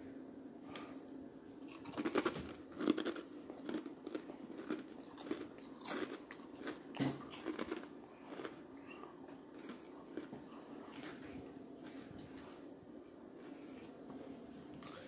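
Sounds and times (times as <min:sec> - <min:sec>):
person chewing crunchy crisps: 0:01.6 - 0:12.4.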